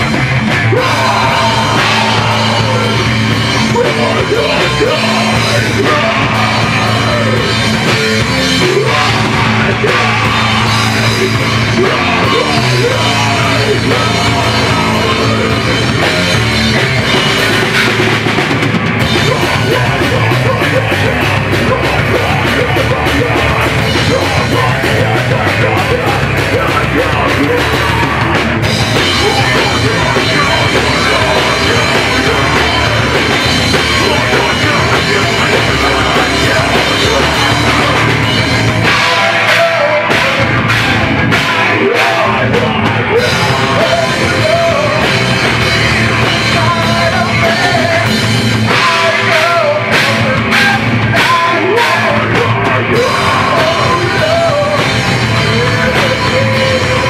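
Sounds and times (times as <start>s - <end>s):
bass guitar: 0.0s - 57.0s
distorted electric guitars: 0.0s - 57.0s
drum kit: 0.0s - 57.0s
shouted vocals into microphone: 0.6s - 3.0s, 38.8s - 45.1s.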